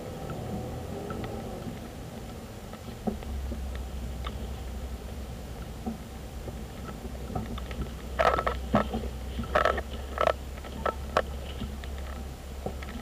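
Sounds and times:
road and engine rumble: 0.0s - 13.0s
sharp knocks and rattles: 5.7s - 13.0s.

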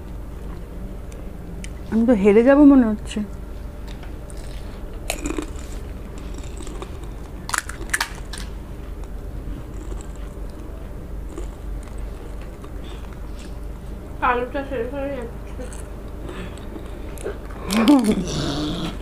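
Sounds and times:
crisp shells crunching and cracking: 4.2s - 8.6s, 15.6s - 18.4s.

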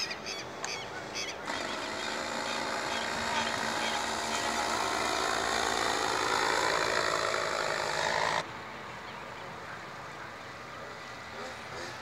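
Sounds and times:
paramotor engine buzzing: 0.5s - 8.5s, 10.6s - 12.0s.

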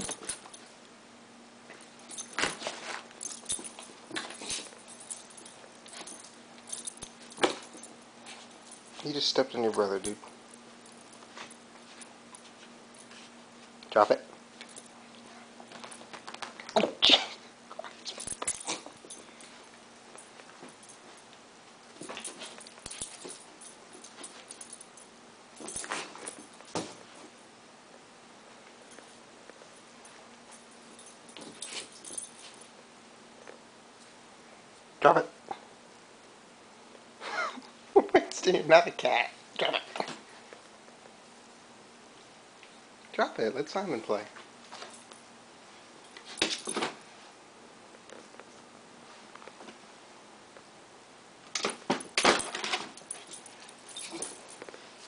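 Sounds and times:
puppy scuffling and clicking: 1.7s - 13.9s, 14.5s - 16.8s, 17.8s - 24.9s, 25.6s - 27.4s, 28.6s - 32.7s, 51.5s - 55.0s.

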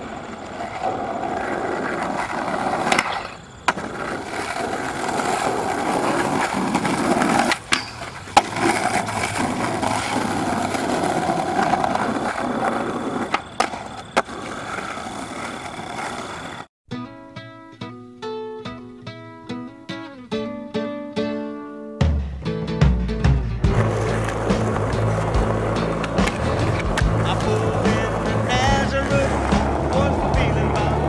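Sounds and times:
skateboard clacking on ground: 0.0s - 16.6s, 23.7s - 31.0s
skateboard wheels rolling on concrete: 0.0s - 16.7s, 23.6s - 31.0s.

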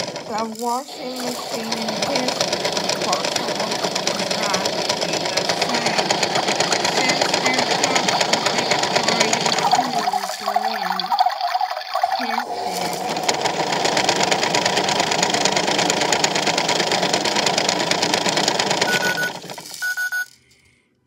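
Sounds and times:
toy motor whirring: 0.0s - 20.6s
beads rattling in drum: 0.0s - 20.7s
short high beeps: 18.9s - 20.3s.

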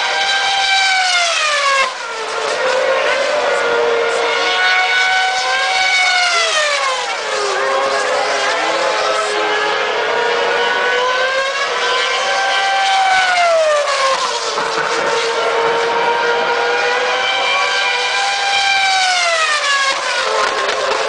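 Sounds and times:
racing car engine at high revs: 0.0s - 21.0s.

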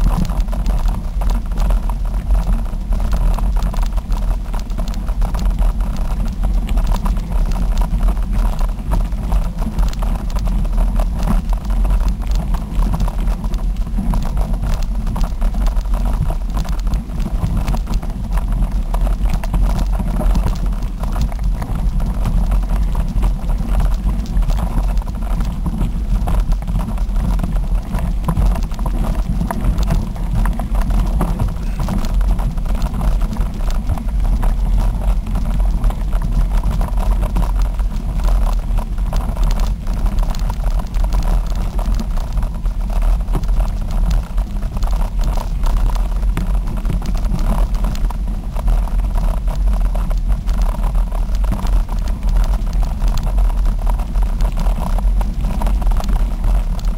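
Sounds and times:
wind buffeting microphone: 0.0s - 45.6s
rumble over gravel trail: 0.0s - 56.9s.

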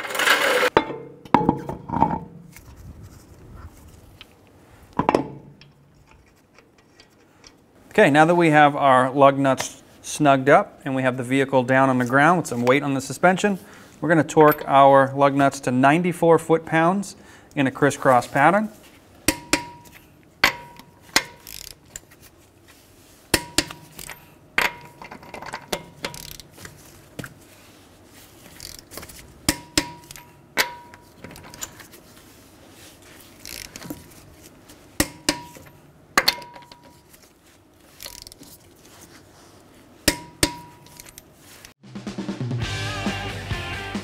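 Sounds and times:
torque wrench metallic click: 19.3s - 22.0s, 25.7s - 26.5s.

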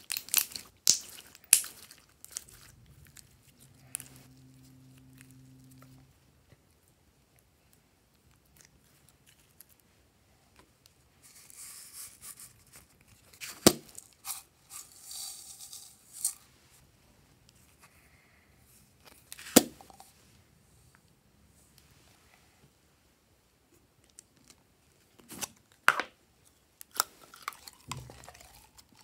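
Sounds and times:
sticky slime rustling and scraping: 0.0s - 5.4s.

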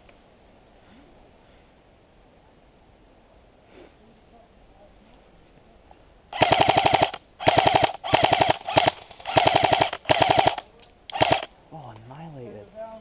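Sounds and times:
airsoft rifle firing bursts: 6.3s - 11.5s.

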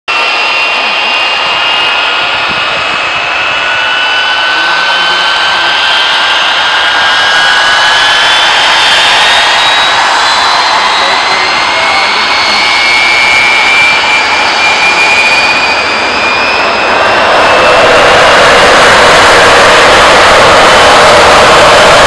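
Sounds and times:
jet engine roar with whine: 0.1s - 22.0s.

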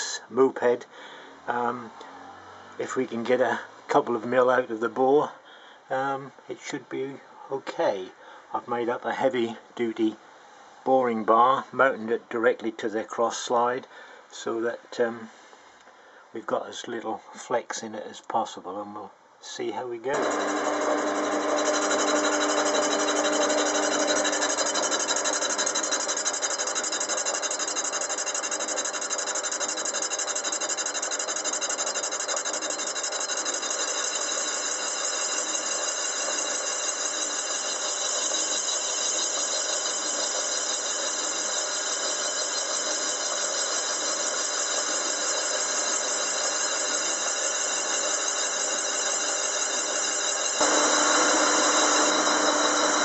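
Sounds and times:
metal lathe boring metal: 20.1s - 53.0s.

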